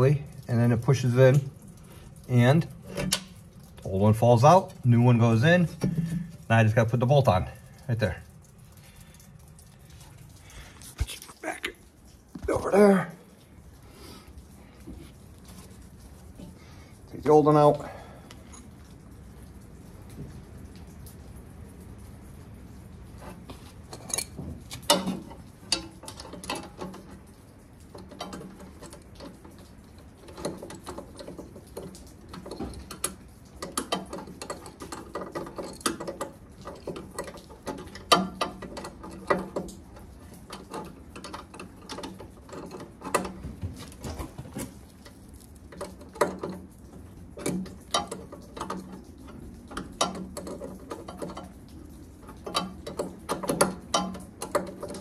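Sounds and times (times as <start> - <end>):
metal tools clicking and clinking: 23.9 - 27.1.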